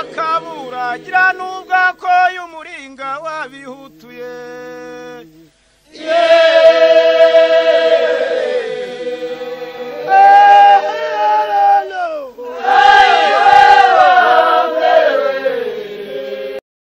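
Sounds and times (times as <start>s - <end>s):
group of voices chanting: 0.0s - 1.7s, 5.9s - 16.6s.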